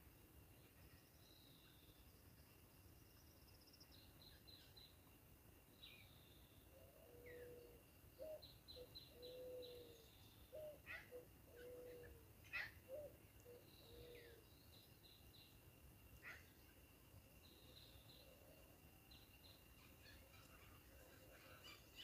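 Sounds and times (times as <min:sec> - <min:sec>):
drawn-out whistled bird notes: 0:05.8 - 0:15.6.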